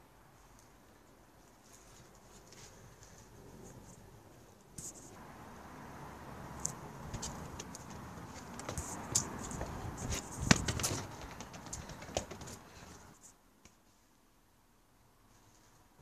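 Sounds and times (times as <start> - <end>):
football bumping on wooden decking: 7.0 - 13.1.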